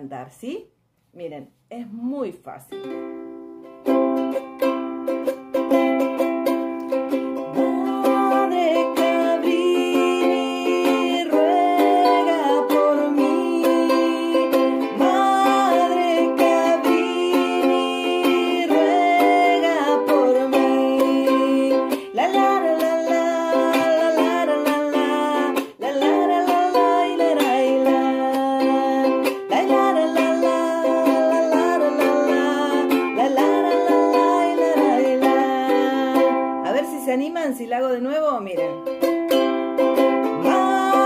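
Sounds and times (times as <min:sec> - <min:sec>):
ukulele strumming: 0:02.7 - 0:41.0
woman singing: 0:07.3 - 0:38.8, 0:40.0 - 0:41.0.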